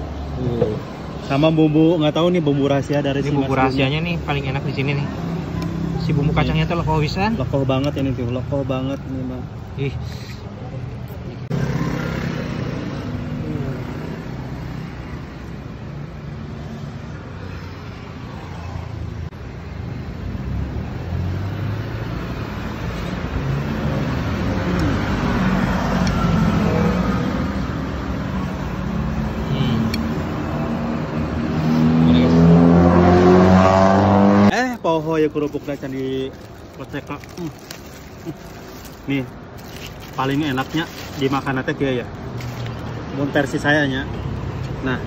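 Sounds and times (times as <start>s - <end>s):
road traffic hum: 0.0s - 45.0s
vehicle engine passing: 11.4s - 15.3s, 20.4s - 34.7s.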